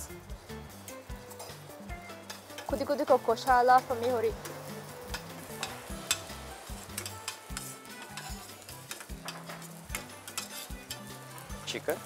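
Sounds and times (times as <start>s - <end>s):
background music: 0.0s - 12.0s
food sizzling in oil: 0.0s - 12.0s
spoon clinking against pan: 6.9s - 11.2s.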